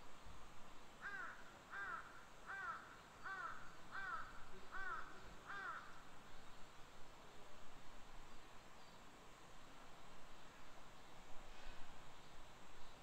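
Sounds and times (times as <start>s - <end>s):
outdoor ambience hiss: 0.0s - 13.0s
crow cawing: 1.0s - 6.0s.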